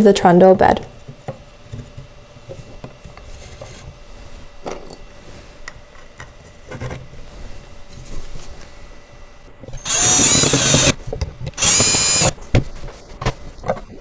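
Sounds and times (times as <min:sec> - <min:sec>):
screws clicking into holes: 0:09.8 - 0:11.0, 0:11.6 - 0:12.4.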